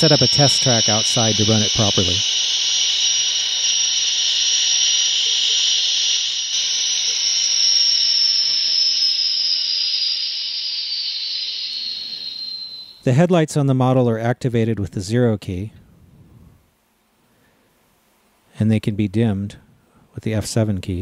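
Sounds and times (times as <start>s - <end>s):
high-pitched turbine whine: 0.0s - 13.0s.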